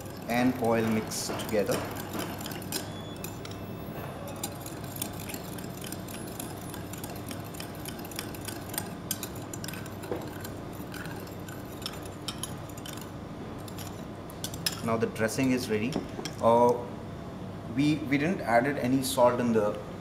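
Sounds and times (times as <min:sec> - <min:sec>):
metal spoon clinking in ceramic bowl: 0:00.0 - 0:14.9.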